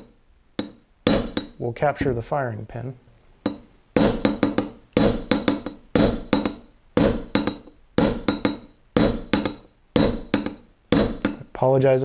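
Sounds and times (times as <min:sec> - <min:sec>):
hammer tapping steel punch: 0:00.0 - 0:02.2, 0:03.4 - 0:11.5.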